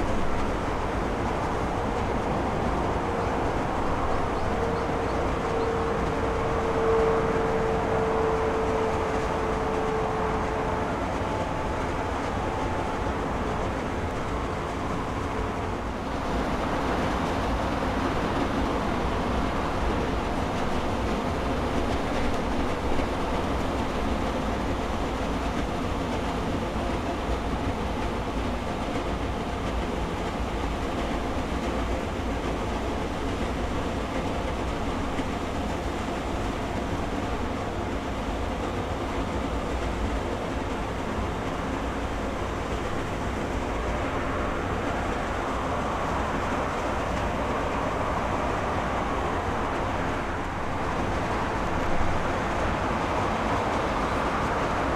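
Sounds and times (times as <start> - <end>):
jet engines running: 0.0 - 54.9.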